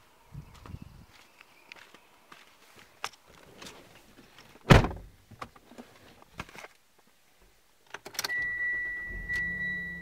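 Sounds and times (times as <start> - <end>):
car door shutting: 4.6 - 5.1
dashboard warning chime: 8.3 - 10.0.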